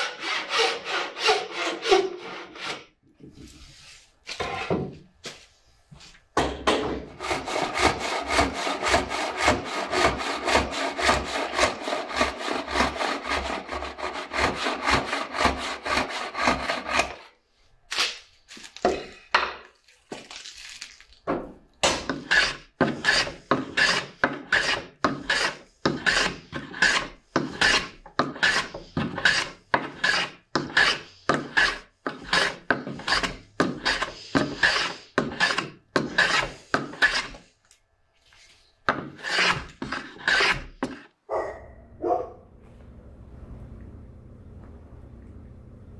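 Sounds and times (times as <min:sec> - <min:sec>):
hand saw cutting a board: 0:00.0 - 0:02.9, 0:07.1 - 0:17.3, 0:22.0 - 0:37.5, 0:38.9 - 0:41.1
hand-tool strokes on wood: 0:00.0 - 0:06.2, 0:07.0 - 0:17.4, 0:22.0 - 0:37.5, 0:38.2 - 0:41.1.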